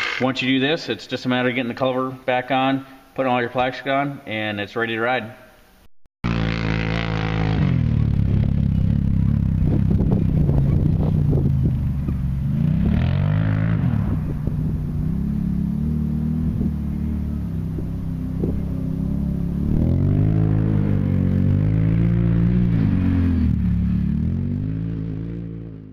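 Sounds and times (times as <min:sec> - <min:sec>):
atv engine revving: 0:00.0 - 0:00.5, 0:06.2 - 0:25.9.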